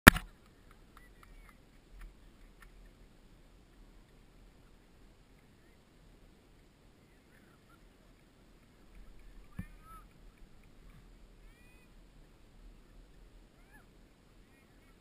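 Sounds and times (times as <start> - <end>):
faint ticks: 7.7 - 11.2.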